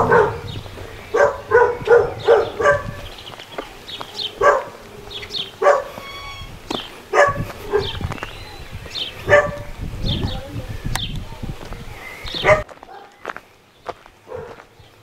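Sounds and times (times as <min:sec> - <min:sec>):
dog barking: 0:00.0 - 0:00.5, 0:01.1 - 0:03.0, 0:04.4 - 0:04.8, 0:05.6 - 0:06.0, 0:07.1 - 0:08.1, 0:09.2 - 0:09.7, 0:12.4 - 0:13.2, 0:14.3 - 0:14.6.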